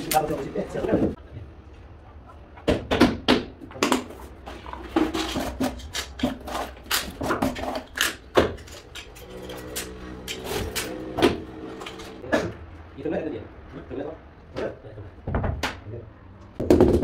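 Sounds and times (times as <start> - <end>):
steady multi-tone hum: 8.1 - 14.4.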